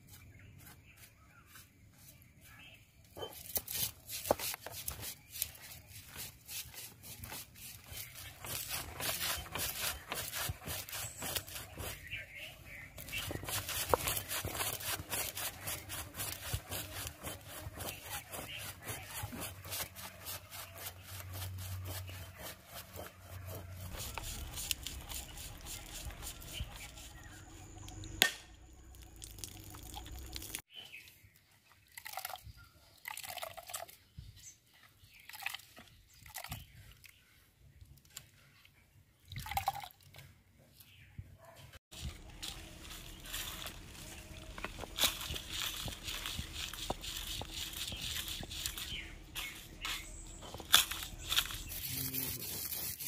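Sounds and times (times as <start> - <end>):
stone roller crunching seeds: 3.2 - 30.6, 41.9 - 53.0
liquid drips and splashes: 28.8 - 30.6, 31.8 - 34.0.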